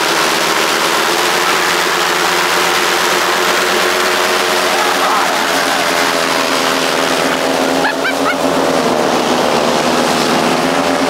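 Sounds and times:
two-stroke engine running: 0:00.0 - 0:11.0.

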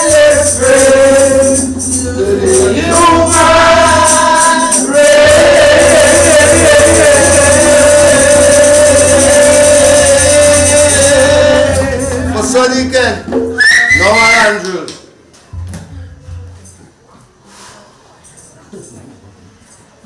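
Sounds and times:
person singing a long note: 0:00.0 - 0:12.4.

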